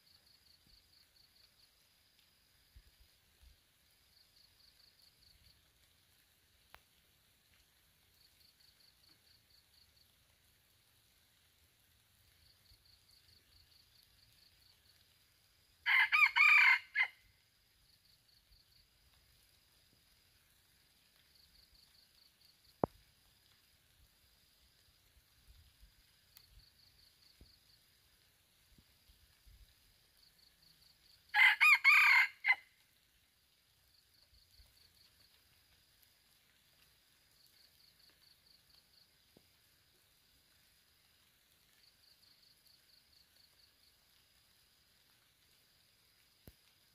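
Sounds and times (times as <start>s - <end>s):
rooster crowing: 15.8s - 17.2s, 31.3s - 32.6s.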